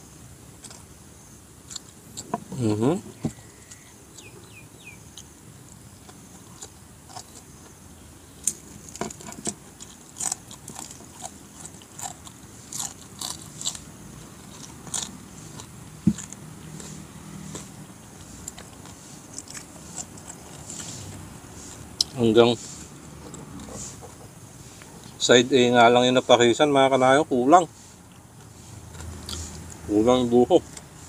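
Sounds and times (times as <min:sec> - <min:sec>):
person chewing crunchy food: 0:01.6 - 0:02.6, 0:03.3 - 0:25.2, 0:28.1 - 0:29.9.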